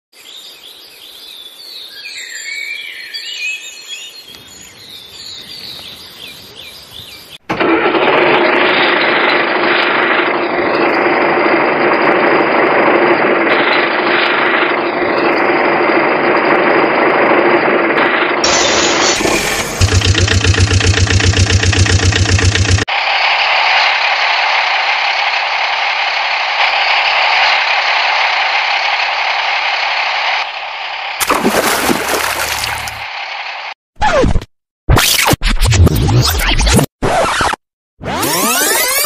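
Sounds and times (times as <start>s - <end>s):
small birds chirping: 0.2s - 7.4s
engine running: 7.5s - 33.8s.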